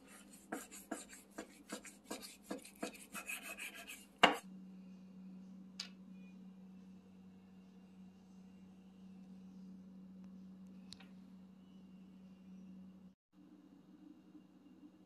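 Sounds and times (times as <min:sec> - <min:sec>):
knife scraping through fat: 0:00.0 - 0:04.4
faint steady hum: 0:00.0 - 0:15.0.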